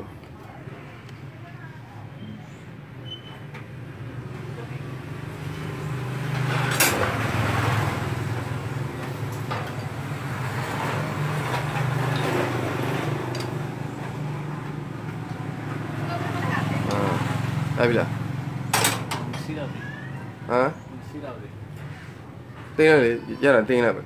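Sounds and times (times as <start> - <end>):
vehicle engine humming: 3.6 - 22.5
metal parts and tools clinking: 11.4 - 13.6.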